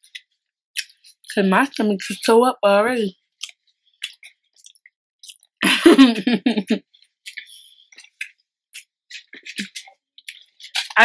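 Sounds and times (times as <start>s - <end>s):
chewing mouth clicks and smacks: 0.0s - 1.4s, 3.3s - 5.5s, 6.9s - 11.0s.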